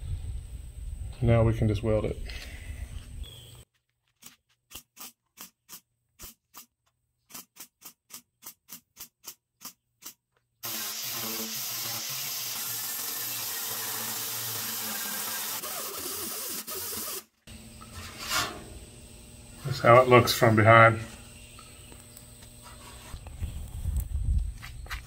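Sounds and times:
angle grinder grinding: 10.6s - 18.6s.

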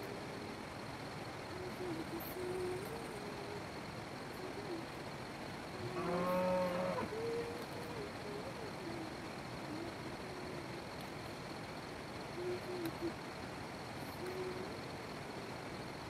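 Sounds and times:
cow mooing: 5.9s - 7.0s.

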